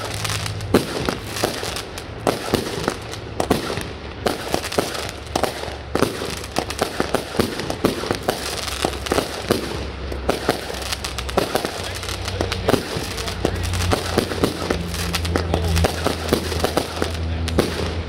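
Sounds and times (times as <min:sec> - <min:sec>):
fireworks bangs: 0:00.0 - 0:18.0
fireworks crackle: 0:00.0 - 0:18.0.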